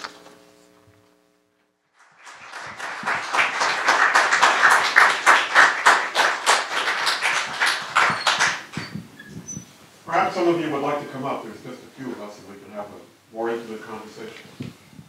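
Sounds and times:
audience applauding: 0:02.0 - 0:09.0.

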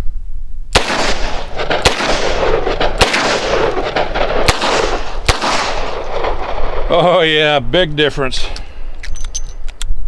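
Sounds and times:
revolver shots with echo: 0:00.8 - 0:06.7.

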